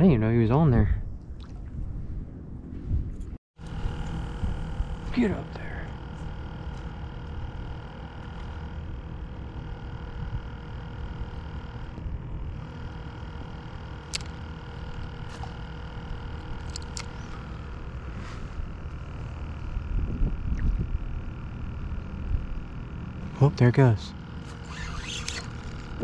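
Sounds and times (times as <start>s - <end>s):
faint steady hum: 0.0s - 26.0s
wind rumbling on microphone: 0.6s - 5.1s, 18.6s - 22.7s
sharp clicks: 12.7s - 17.5s.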